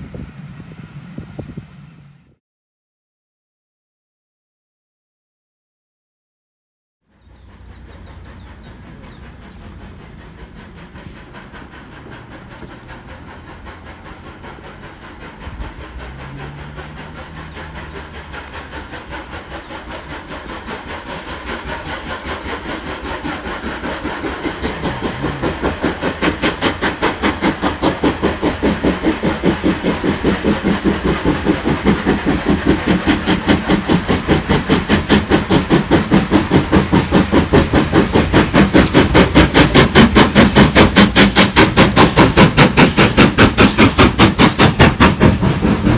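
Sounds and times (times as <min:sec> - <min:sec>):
steam locomotive chuffing: 0:00.0 - 0:02.4, 0:07.1 - 0:45.9.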